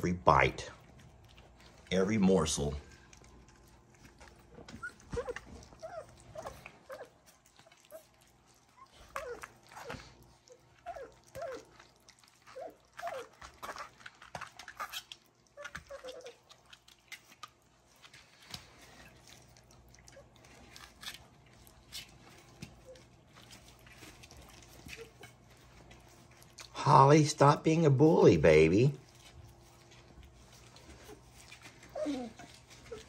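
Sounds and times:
puppies lapping food: 0.0 - 33.0
puppies squeaking and whimpering: 2.9 - 27.1, 28.4 - 33.0.

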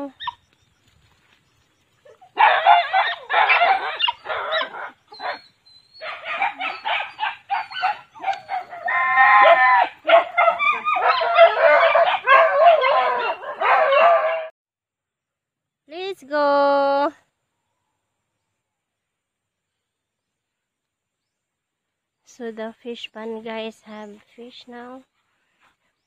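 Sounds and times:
dogs barking and yipping: 2.0 - 14.5.

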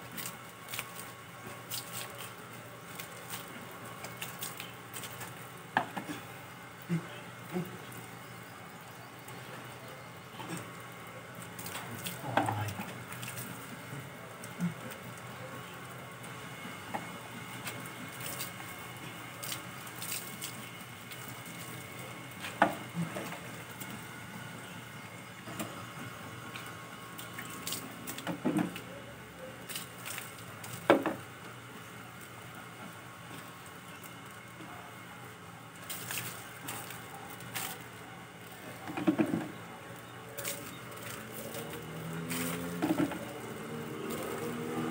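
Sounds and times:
water splashing: 17.6 - 23.8, 40.4 - 44.9.

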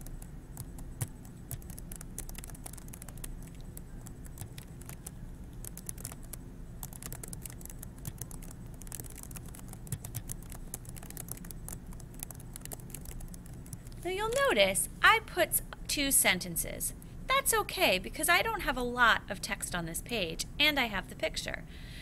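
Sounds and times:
keyboard typing: 0.0 - 14.4.

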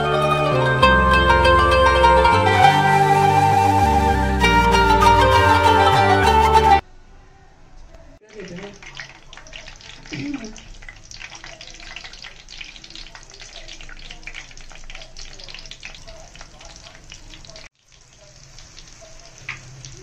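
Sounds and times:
food sizzling in hot oil: 8.2 - 20.0.

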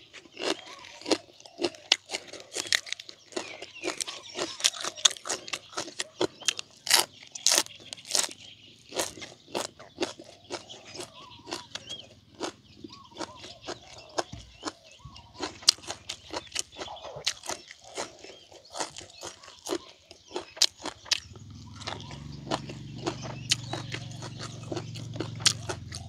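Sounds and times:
man chewing crunchy food: 0.0 - 26.0.

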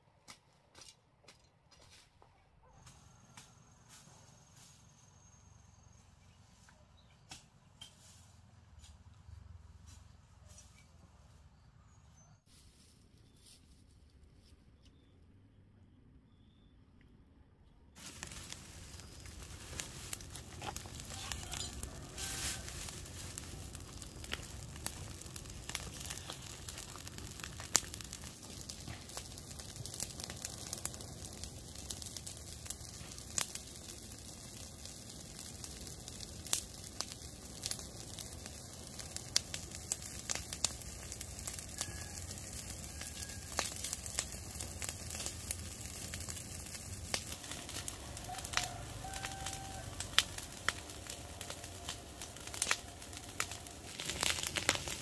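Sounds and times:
fire hissing and sizzling: 18.0 - 55.0
wood fire crackling and popping: 18.0 - 55.0.

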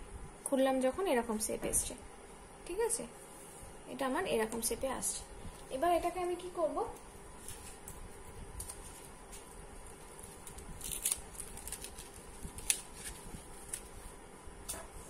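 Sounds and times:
ribbon rustling and clicking: 7.0 - 14.1.

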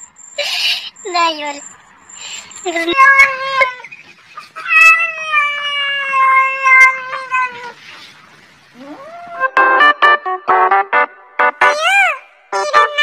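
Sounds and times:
cat meowing: 4.6 - 7.8.

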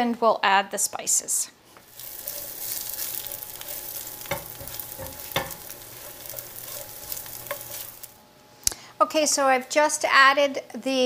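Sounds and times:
tortilla pieces sizzling in oil: 1.8 - 8.3
spatula striking a pan: 1.9 - 8.2.

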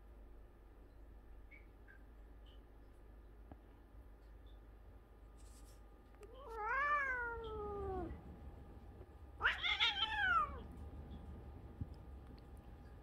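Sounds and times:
cat yowling: 6.3 - 8.2, 9.4 - 10.6.

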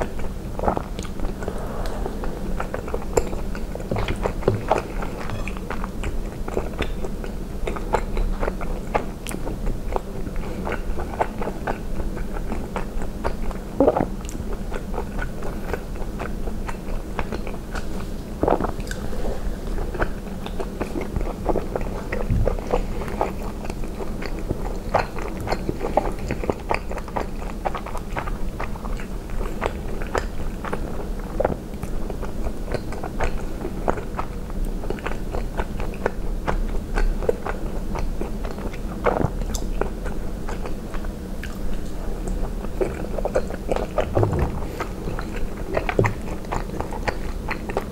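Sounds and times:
wet chewing and biting: 20.0 - 47.9.

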